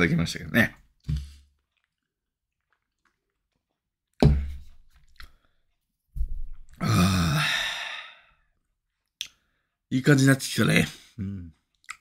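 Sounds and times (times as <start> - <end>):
sudden thump: 4.2 - 4.6
man sighing ahh: 6.8 - 8.3.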